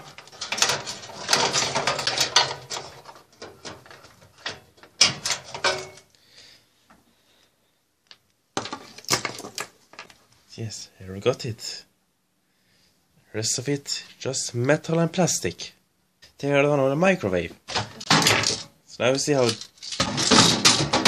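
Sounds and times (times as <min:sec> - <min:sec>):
sheet metal parts clattering: 0:00.0 - 0:06.1, 0:08.6 - 0:10.2, 0:17.7 - 0:18.7, 0:19.3 - 0:21.0.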